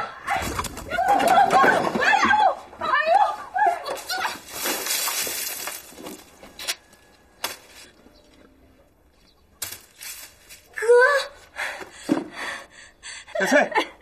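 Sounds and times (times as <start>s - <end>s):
grain spilling from basket: 4.4s - 6.3s.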